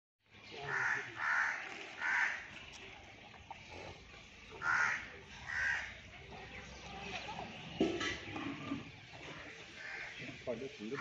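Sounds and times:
crow cawing: 0:00.7 - 0:02.5, 0:04.6 - 0:06.0, 0:09.7 - 0:11.0.

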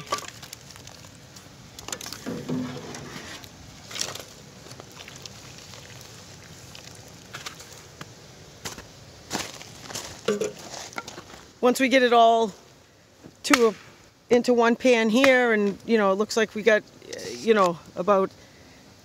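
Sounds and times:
sap boiling with bubbling hiss: 0:00.0 - 0:19.0
liquid pouring: 0:03.8 - 0:08.0.

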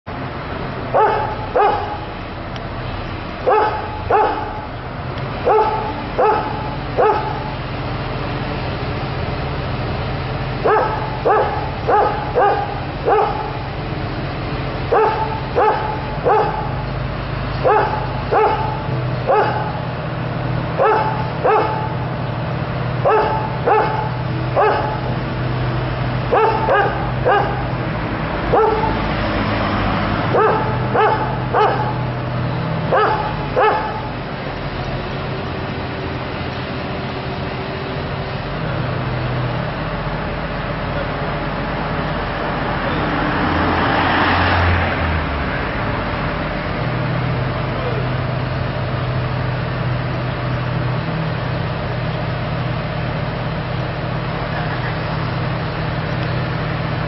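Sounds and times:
dog barking: 0:00.9 - 0:02.1, 0:03.4 - 0:04.6, 0:05.4 - 0:07.5, 0:10.6 - 0:13.6, 0:14.9 - 0:16.8, 0:17.6 - 0:19.8, 0:20.8 - 0:22.1, 0:23.0 - 0:25.1, 0:26.3 - 0:27.8, 0:28.5 - 0:29.1, 0:30.3 - 0:32.1, 0:32.9 - 0:34.1.

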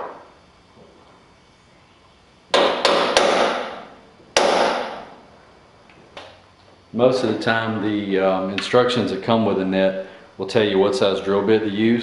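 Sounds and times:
hammer striking punch on steel: 0:02.5 - 0:03.8, 0:04.4 - 0:05.1.

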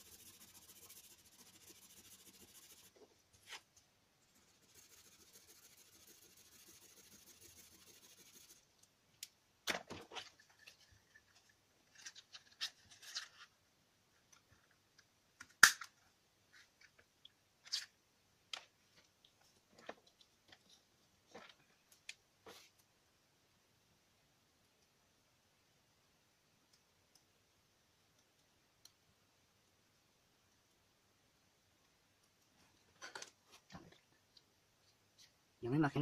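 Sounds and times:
highlighter scratching on card: 0:00.0 - 0:03.0, 0:04.4 - 0:08.6.

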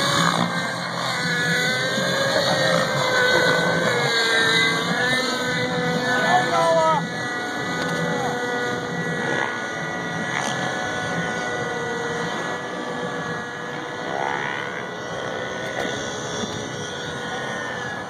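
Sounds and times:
aircraft engine drone overhead: 0:00.0 - 0:18.0
faint tones and pitch glides: 0:00.0 - 0:18.0.

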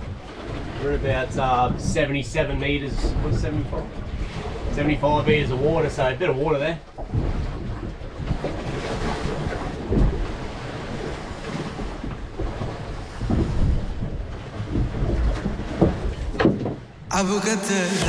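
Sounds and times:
wind buffeting microphone: 0:00.0 - 0:17.1
choppy sea against boat: 0:00.0 - 0:18.0.

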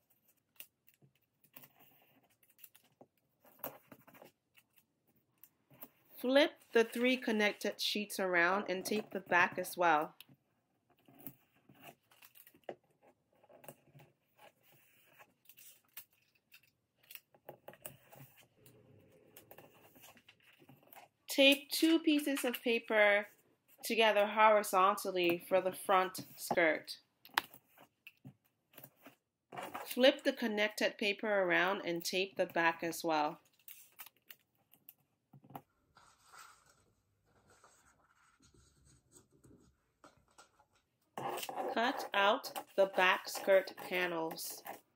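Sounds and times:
paper and tape rustling: 0:00.0 - 0:07.8, 0:10.9 - 0:23.9, 0:33.2 - 0:35.0, 0:35.7 - 0:44.9
paper rustling and scraping: 0:35.8 - 0:44.9.

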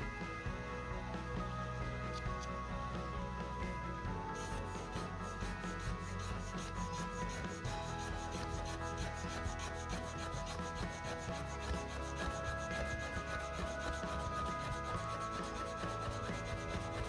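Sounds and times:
stick rubbing along wooden board: 0:04.4 - 0:17.0.

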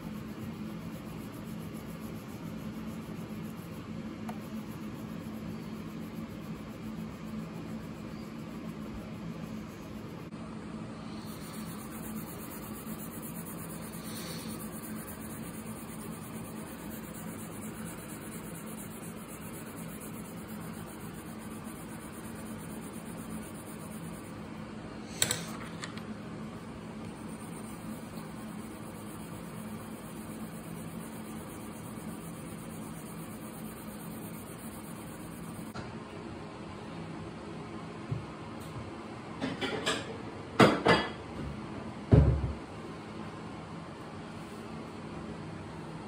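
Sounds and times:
low mechanical hum: 0:00.0 - 0:46.0
sharp click: 0:25.1 - 0:26.1.

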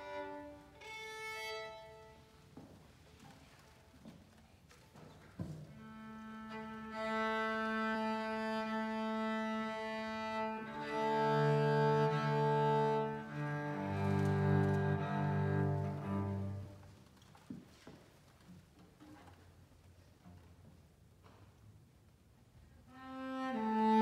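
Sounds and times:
cello bowing sustained notes: 0:05.8 - 0:16.8, 0:22.9 - 0:24.0.

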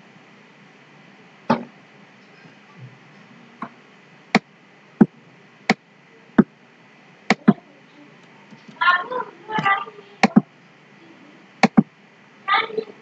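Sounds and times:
sharp computer clicks: 0:10.2 - 0:10.4, 0:11.6 - 0:11.9.

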